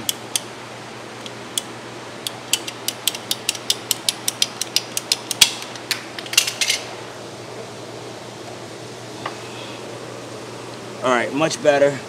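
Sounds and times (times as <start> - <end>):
ratcheting pipe cutter clicking: 1.6 - 6.5.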